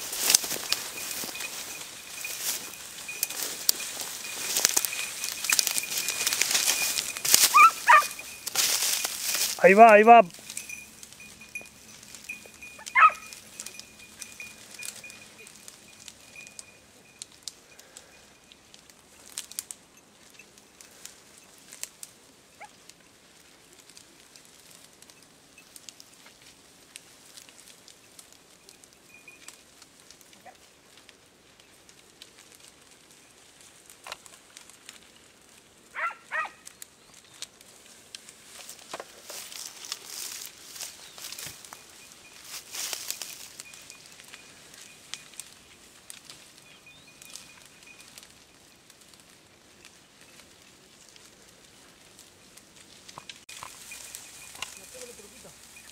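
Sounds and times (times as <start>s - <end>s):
twigs and brush crackling: 0.0s - 55.9s
dogs yelping: 0.6s - 8.5s, 11.8s - 13.6s, 36.0s - 36.7s.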